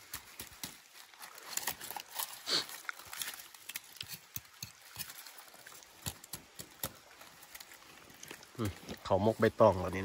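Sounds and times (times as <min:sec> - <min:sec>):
wet clicks and smacks of eating: 0:02.7 - 0:09.0.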